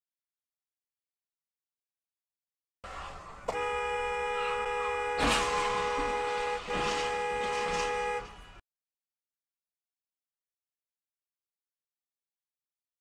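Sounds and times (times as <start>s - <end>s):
vehicle collision crash: 2.8s - 8.6s
vehicle horn blaring: 3.5s - 8.6s.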